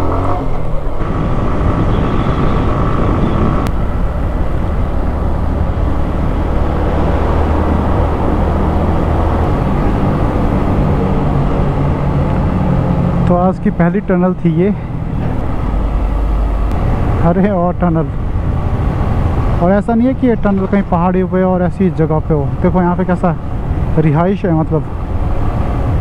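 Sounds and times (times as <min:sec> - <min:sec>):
motorcycle engine cruising: 0:00.0 - 0:22.7
wind and road noise: 0:00.0 - 0:26.0.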